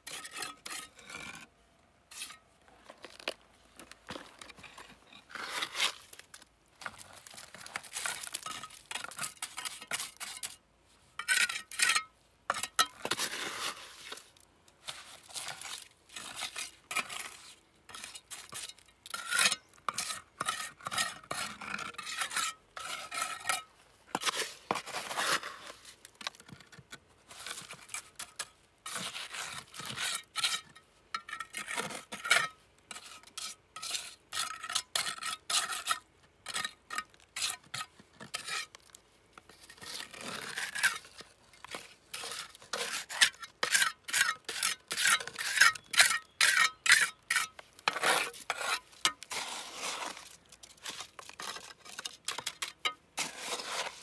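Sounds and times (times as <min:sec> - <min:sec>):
metal scraping container: 0:39.5 - 0:54.0.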